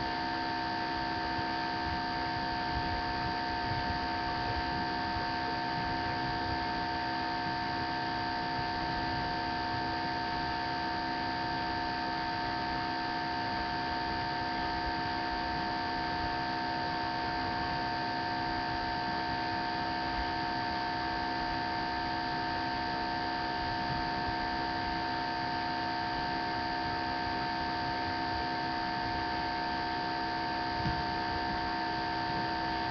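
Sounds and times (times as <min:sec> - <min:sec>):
electrical hum and hiss: 0:26.2 - 0:32.9.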